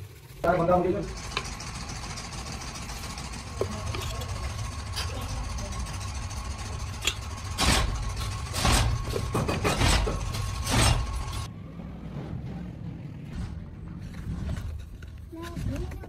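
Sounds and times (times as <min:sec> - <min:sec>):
low machine hum: 0:00.0 - 0:14.9
brush parts scraping: 0:02.8 - 0:05.2.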